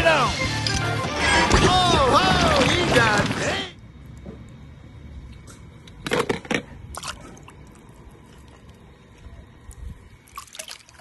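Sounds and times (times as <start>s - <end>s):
pool water splashing: 10.3s - 11.0s.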